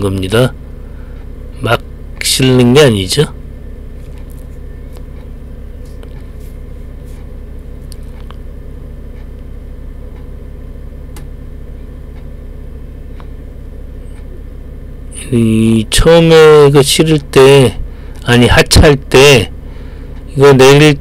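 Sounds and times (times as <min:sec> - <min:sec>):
forklift engine running: 0:00.0 - 0:21.0.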